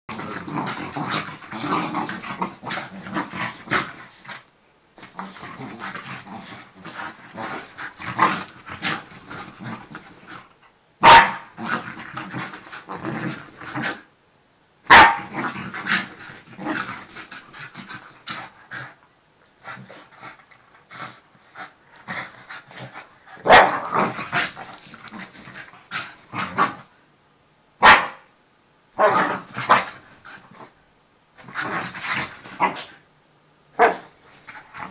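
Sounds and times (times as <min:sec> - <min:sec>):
dogs growling and yapping: 0:00.1 - 0:14.1, 0:14.9 - 0:26.9, 0:29.0 - 0:30.8, 0:31.4 - 0:33.1, 0:33.8 - 0:34.9
short loud dog barks: 0:11.0 - 0:11.4, 0:14.9 - 0:15.2, 0:27.8 - 0:28.3.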